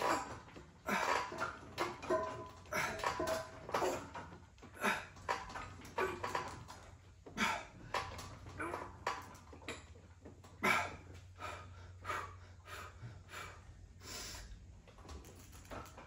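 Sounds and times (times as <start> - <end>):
man breathing hard: 7.2 - 8.2, 10.6 - 14.6.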